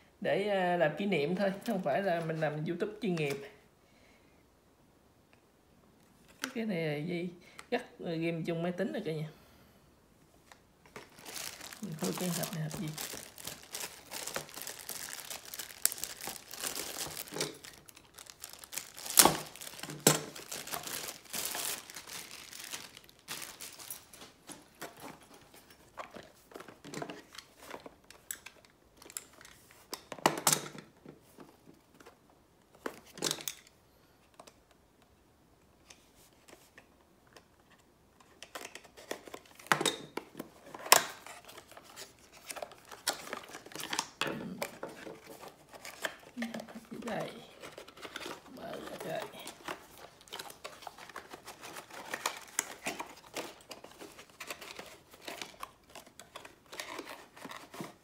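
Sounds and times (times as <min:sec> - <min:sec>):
plastic packaging crinkling: 0:10.4 - 0:30.1, 0:38.4 - 0:58.0.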